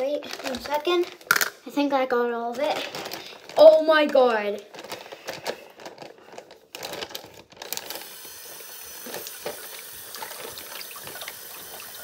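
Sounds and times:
plastic bag crinkling: 0.0s - 1.5s, 2.4s - 12.0s
faucet water running into basin: 7.8s - 12.0s.

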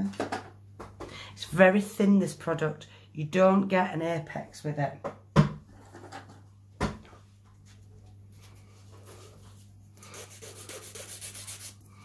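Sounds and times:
nail file rubbing on a nail: 10.0s - 11.8s.

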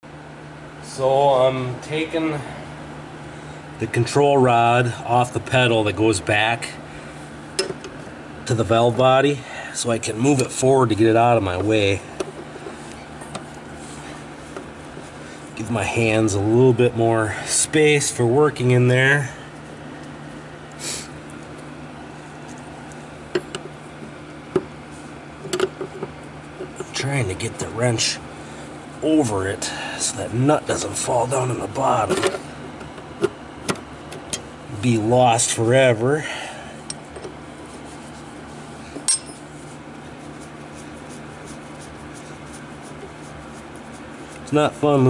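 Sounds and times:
steady low hum: 0.0s - 45.0s
wrench clinking against nut: 39.0s - 39.4s.

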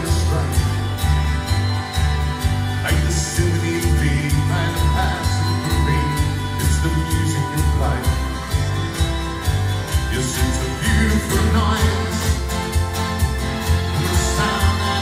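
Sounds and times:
man singing: 0.0s - 1.0s, 2.8s - 8.5s, 10.0s - 12.8s, 13.9s - 15.0s
electric guitar: 0.0s - 15.0s
pulsing bass beat: 0.0s - 15.0s
strummed acoustic guitar: 0.0s - 15.0s.

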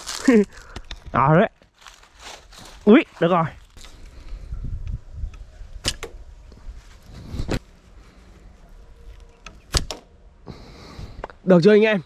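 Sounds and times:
handling rustle: 1.6s - 4.4s.

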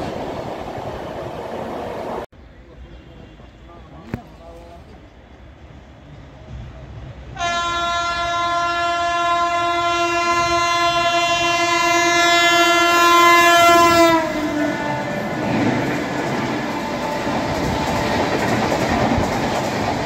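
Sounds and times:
passing train rumble: 0.0s - 20.0s
locomotive horn blast: 7.4s - 15.8s.

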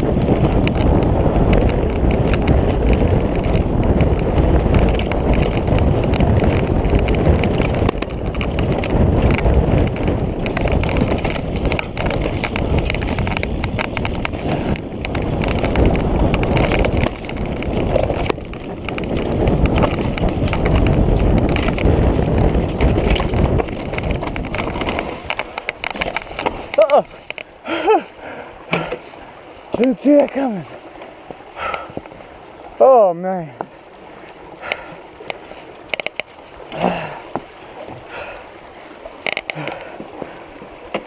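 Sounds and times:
bike clattering rattle: 0.0s - 27.6s
bike tyres crunching over rocks: 0.0s - 32.8s, 33.4s - 41.0s.

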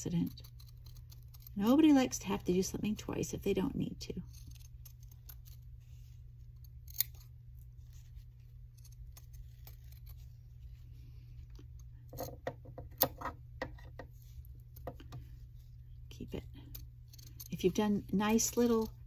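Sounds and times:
scissors snipping fabric: 6.7s - 7.3s.

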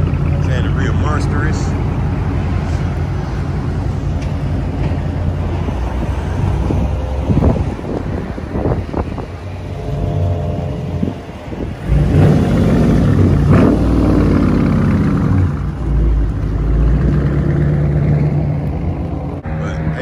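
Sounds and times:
car engine revving: 1.6s - 20.0s.

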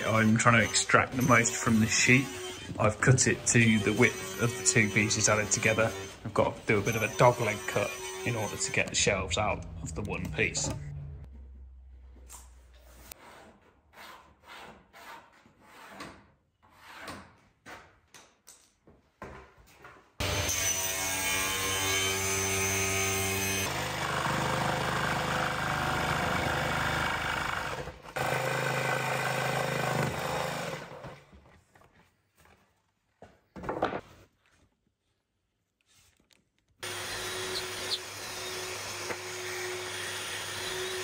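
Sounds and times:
power saw cutting plywood: 0.0s - 10.8s, 20.2s - 31.2s, 36.8s - 41.0s.

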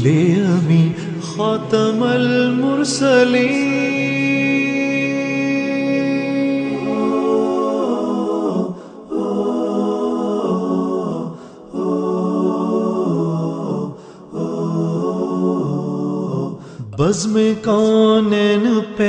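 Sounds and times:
a cappella voices holding chords: 0.0s - 19.0s.

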